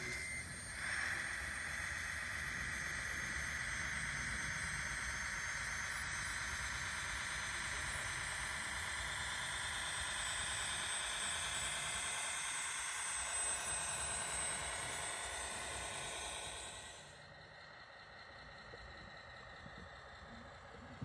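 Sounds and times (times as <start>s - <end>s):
small electric motors whirring: 0.0s - 20.7s.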